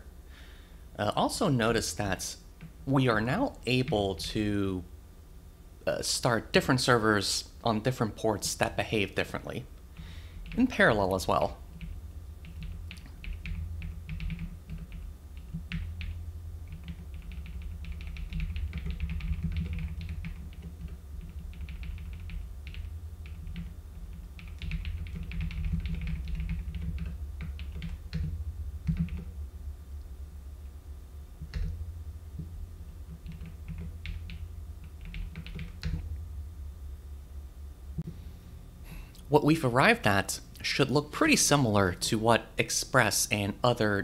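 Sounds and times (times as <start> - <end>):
steady low hum: 0.0 - 44.0
keyboard typing: 10.0 - 29.3, 31.4 - 31.8, 33.1 - 36.0.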